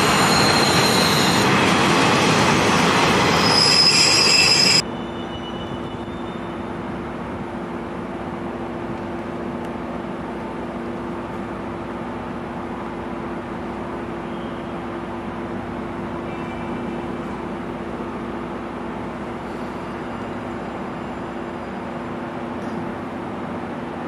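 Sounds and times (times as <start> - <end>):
train wheels squealing on rails: 0.0 - 6.9, 14.0 - 15.2, 16.1 - 17.6, 19.1 - 22.9
rail-yard hum: 0.0 - 24.0.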